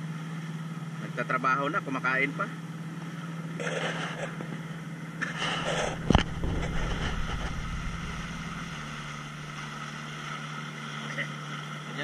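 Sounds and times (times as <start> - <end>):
outboard motor running: 0.0 - 12.0
water rushing past: 5.4 - 11.8
wind rushing: 5.6 - 9.9
sharp thump: 5.8 - 9.6.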